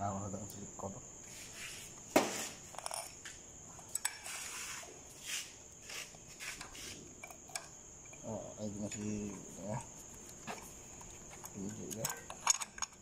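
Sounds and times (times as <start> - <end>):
crickets chirring: 0.0 - 13.0
light metallic clicks and taps: 11.4 - 13.0.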